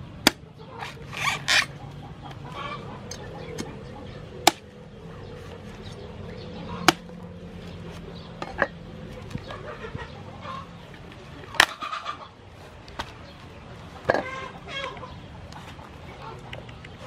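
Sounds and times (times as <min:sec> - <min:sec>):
cleaver knocking fruit: 0:00.2 - 0:00.5, 0:04.4 - 0:04.7, 0:06.8 - 0:07.1.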